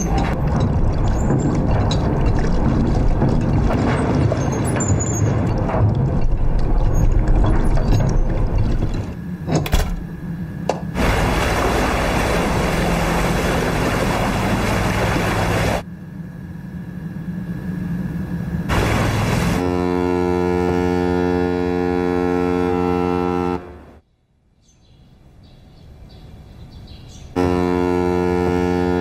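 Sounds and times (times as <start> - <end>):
low rumble: 0.0 - 9.2
anchor chain rattling and clanking: 0.0 - 10.0
ship engine and water rushing: 0.0 - 24.0.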